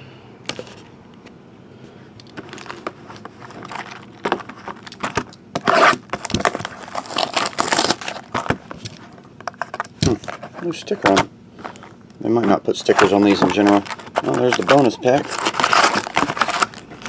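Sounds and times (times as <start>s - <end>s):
cardboard packaging crinkling and tearing: 2.4s - 11.1s, 12.4s - 17.0s.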